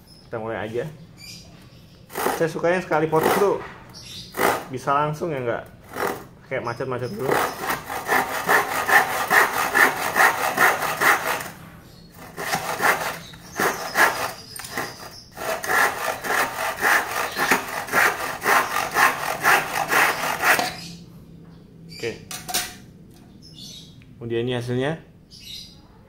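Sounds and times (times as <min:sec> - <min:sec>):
hand saw cutting wood: 0:02.1 - 0:03.6, 0:04.4 - 0:04.8, 0:05.8 - 0:06.3, 0:07.2 - 0:11.6, 0:12.2 - 0:20.9.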